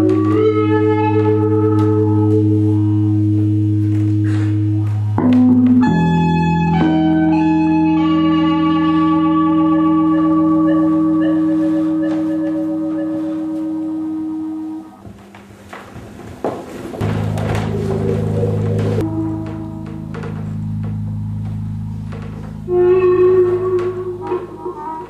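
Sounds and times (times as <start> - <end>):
organ-like held chords: 0.0 - 15.0, 17.0 - 25.0
low drone: 17.0 - 25.0.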